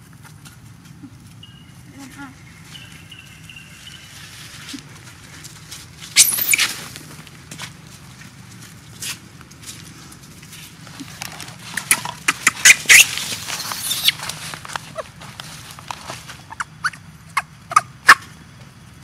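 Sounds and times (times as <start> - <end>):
baby monkey squeaking and clicking: 6.2 - 6.8, 11.7 - 14.2, 16.5 - 18.2.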